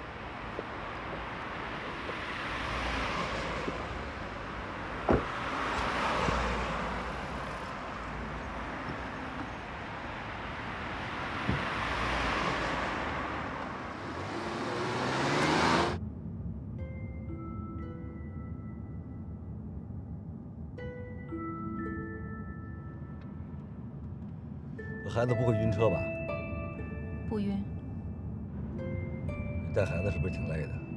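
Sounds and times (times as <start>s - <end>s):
car engine pulling away: 0.0s - 16.0s
cars passing: 0.0s - 16.7s
car door shutting: 5.0s - 5.4s.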